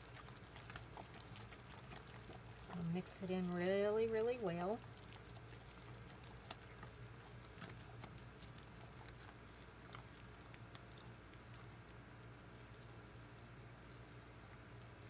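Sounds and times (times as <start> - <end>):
spatula stirring thick batter: 0.0 - 10.1.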